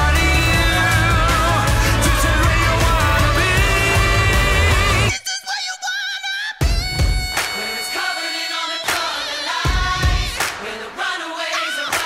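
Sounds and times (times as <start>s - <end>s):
band playing a song: 0.0s - 5.1s.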